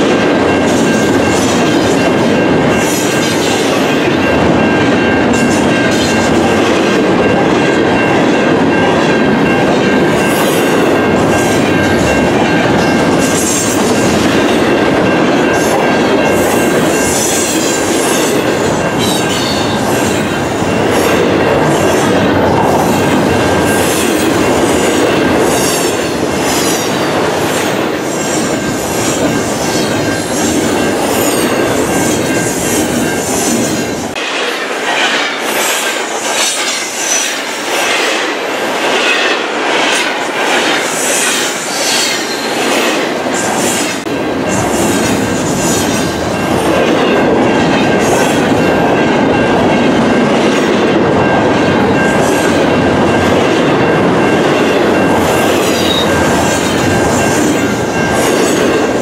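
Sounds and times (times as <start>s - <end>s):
wheels clickety-clack: 0.0s - 34.2s
high ringing of wheels on rail: 0.0s - 59.0s
train wheels rumbling: 0.0s - 59.0s.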